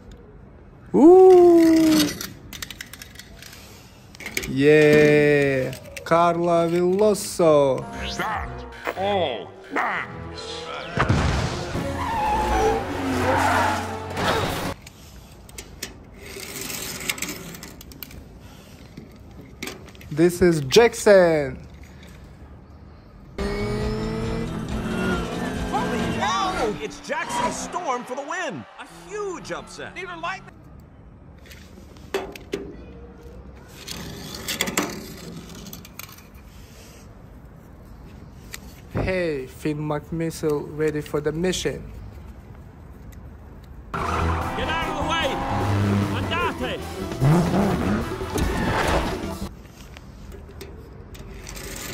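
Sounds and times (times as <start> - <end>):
toy cars clattering: 1.3 - 7.4, 14.7 - 22.4, 33.7 - 36.5, 49.7 - 51.9.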